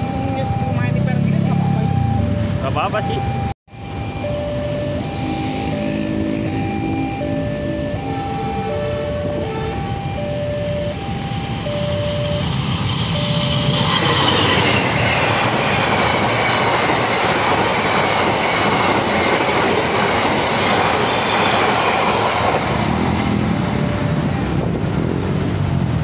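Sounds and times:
level crossing warning tones: 0.0 - 25.3
train wheels on rails: 10.9 - 26.0
clickety-clack over rail joints: 13.3 - 26.0.

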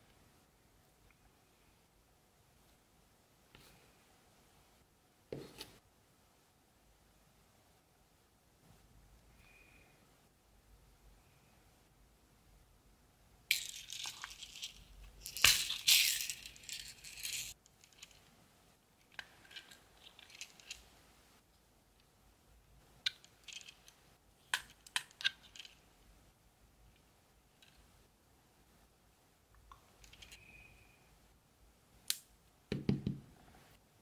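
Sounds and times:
pearls rattling in plastic case: 13.5 - 18.2.

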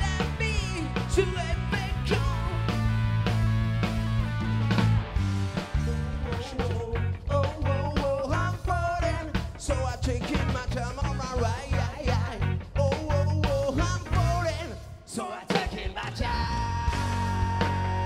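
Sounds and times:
drums beating: 0.0 - 14.7, 15.4 - 18.0
live rock band playing: 0.0 - 18.0
person singing: 5.6 - 18.0.

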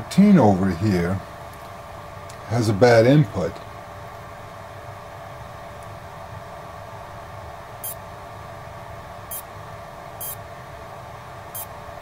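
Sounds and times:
electrical buzz and hiss: 7.8 - 8.0, 9.2 - 9.5, 10.1 - 10.5, 11.5 - 12.0.

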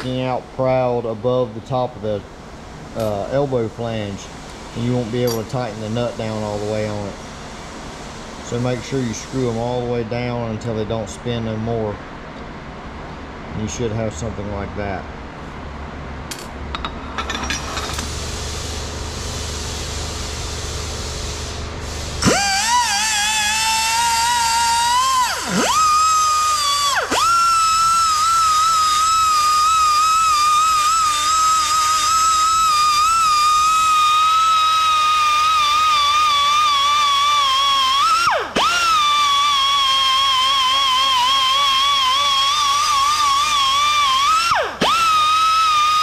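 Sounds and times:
shop background hiss: 0.0 - 12.0, 17.2 - 39.3
metal parts clinking: 5.2 - 5.5, 16.3 - 18.1
die grinder whining: 22.2 - 46.0.

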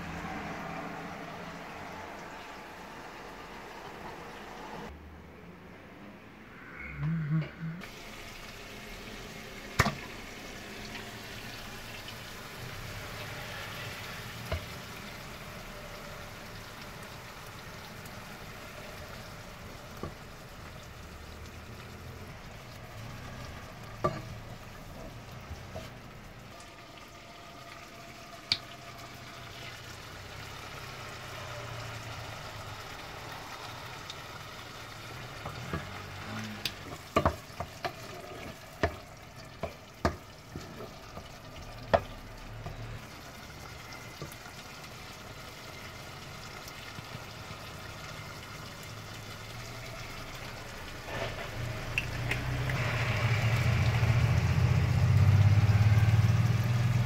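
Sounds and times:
vegetables sizzling in oil: 7.8 - 57.0
wooden spoon knocking pan: 36.9 - 38.0.

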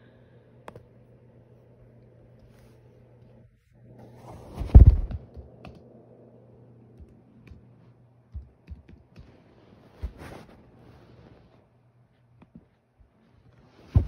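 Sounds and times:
loud muffled thump: 4.5 - 5.3
laptop keyboard keys clicking: 8.3 - 9.3
rustling: 9.3 - 14.0.

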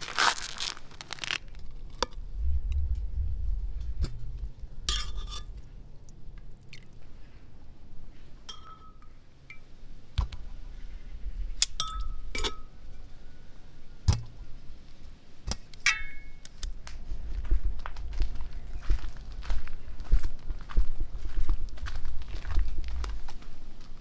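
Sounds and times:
metal cookware clinking: 8.5 - 9.6, 11.8 - 12.7, 15.8 - 16.4.

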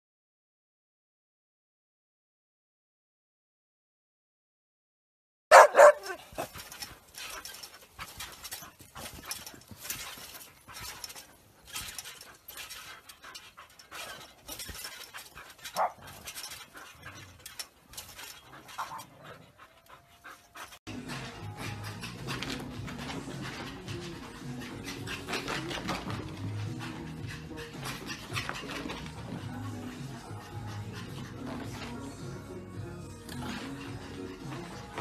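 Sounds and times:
dog crying: 5.5 - 6.6
dog panting: 5.5 - 35.0
music: 20.4 - 35.0.

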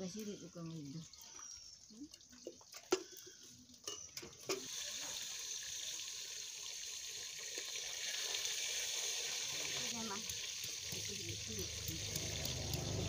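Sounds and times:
steel bowl clinking against bucket: 2.2 - 4.7
steady watery hiss: 4.5 - 13.0.

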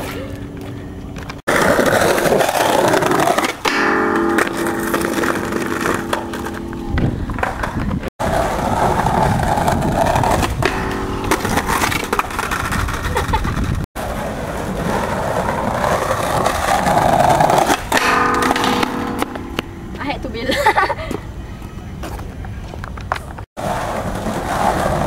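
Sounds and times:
skateboard wheels on paving stones: 0.0 - 25.0
skateboard sliding on metal rail: 1.5 - 20.0, 23.6 - 25.0.

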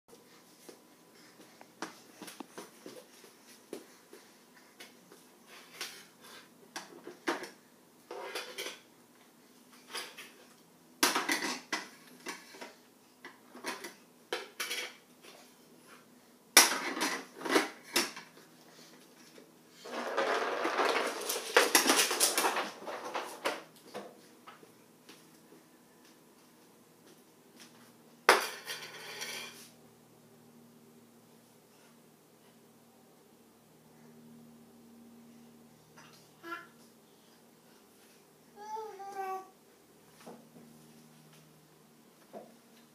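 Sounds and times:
plastic discs clattering on wood floor: 19.8 - 24.1.

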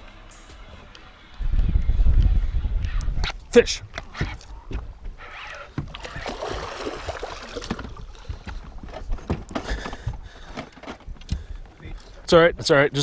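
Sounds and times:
water splashing against boat: 5.2 - 10.8.

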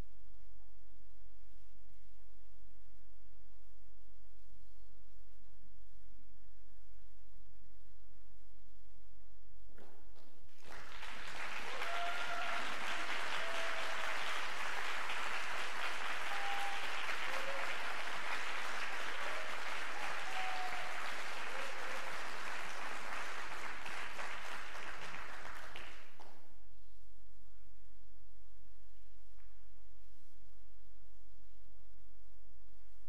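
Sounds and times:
audience applauding: 10.6 - 26.3.

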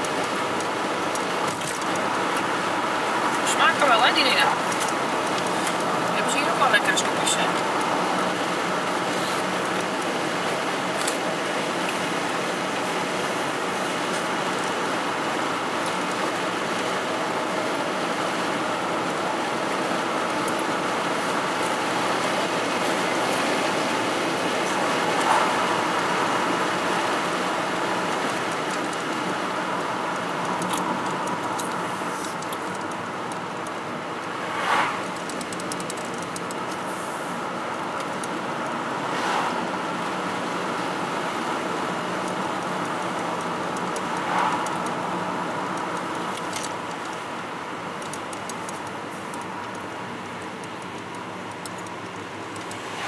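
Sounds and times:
road and engine noise in car: 0.0 - 53.0
rush of air: 34.4 - 35.2.

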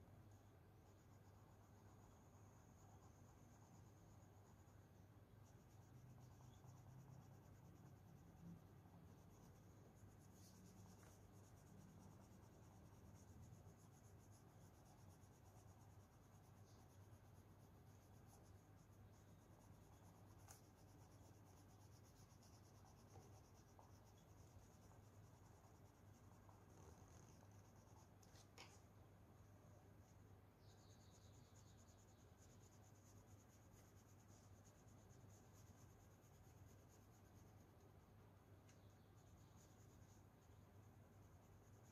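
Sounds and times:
low steady hum: 0.0 - 41.9
colour pencil scratching on paper: 0.9 - 28.9, 29.9 - 41.9.

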